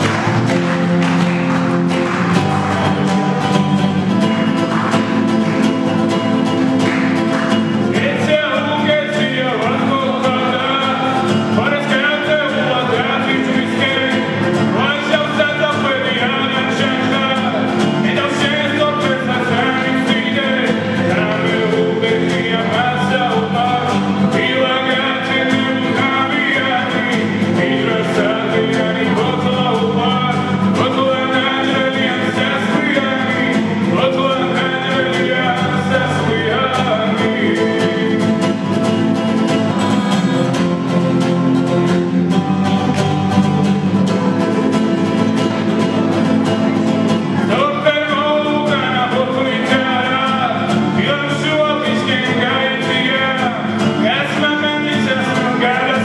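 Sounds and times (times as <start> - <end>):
instrumental song accompaniment: 0.0 - 56.0
person singing: 7.8 - 38.7, 39.4 - 41.1, 46.6 - 56.0.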